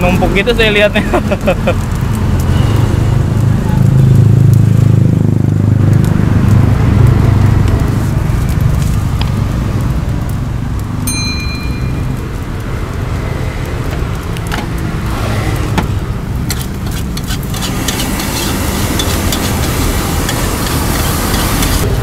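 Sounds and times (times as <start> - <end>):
steady low rumble: 11.6 - 22.0
metal spatula scraping wok: 16.5 - 21.9.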